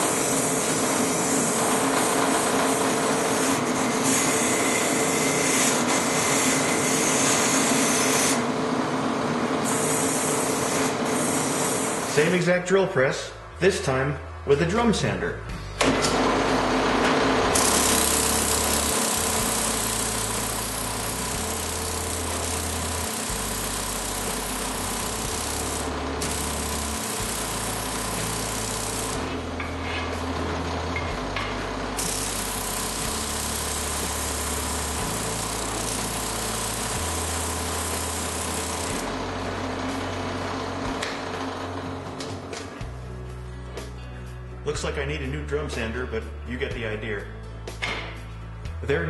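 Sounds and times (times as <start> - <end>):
sanding drum grinding metal: 0.0 - 8.4, 17.6 - 30.7
drill press motor hum: 0.0 - 12.2, 15.8 - 42.9.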